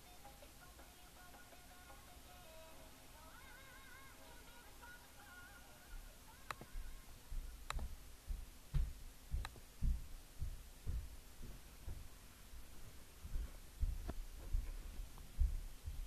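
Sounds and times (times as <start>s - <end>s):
faint music: 0.0s - 16.0s
soft low thumps: 6.6s - 16.0s.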